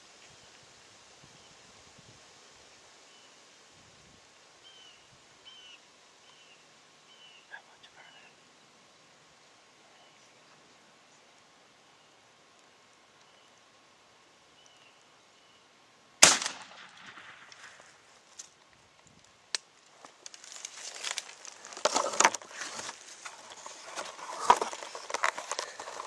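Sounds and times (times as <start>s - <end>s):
shotgun blast with echo: 16.2s - 17.5s
rustling of grass and clothing: 16.2s - 26.0s.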